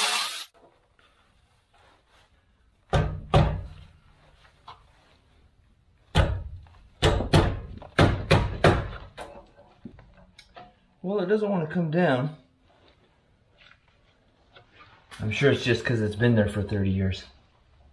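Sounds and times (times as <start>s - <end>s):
metal knocks and clunks: 2.9s - 3.9s, 6.1s - 10.8s.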